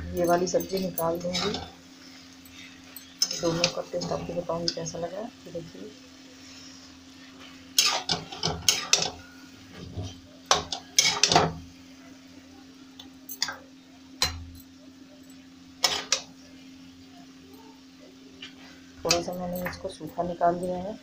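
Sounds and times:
metal spoon scraping metal pan: 0.8 - 1.7, 7.8 - 9.2.

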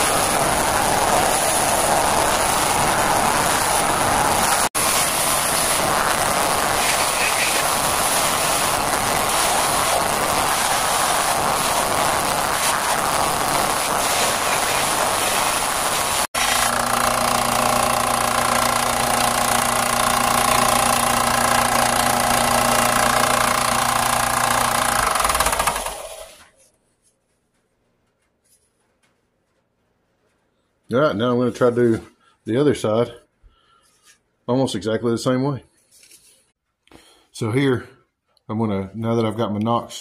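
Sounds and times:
sander motor humming: 0.0 - 26.4
belt sander grinding antler: 16.4 - 26.5.

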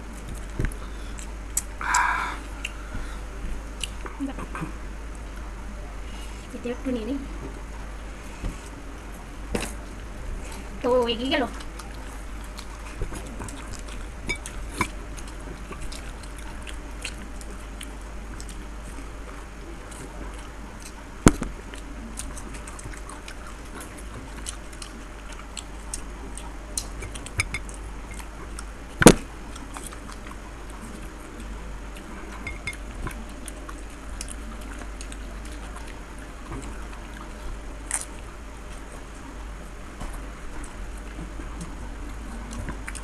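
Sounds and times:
chewing: 0.0 - 5.5, 8.3 - 43.0
glass bowls clinking: 27.4 - 27.7, 32.4 - 32.8.

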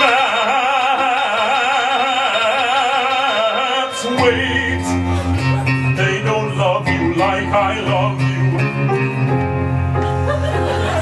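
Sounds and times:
piano: 0.0 - 11.0
electric guitar: 3.8 - 11.0.

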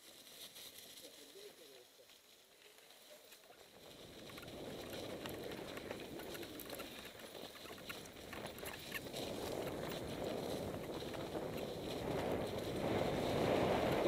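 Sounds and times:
bike tyres rolling over dry leaves: 0.0 - 14.0
bike clicks and rattles: 3.8 - 14.0.

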